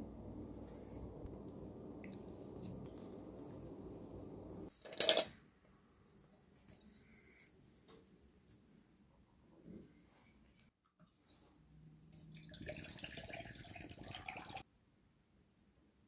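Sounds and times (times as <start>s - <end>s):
low steady hum: 0.0s - 4.7s.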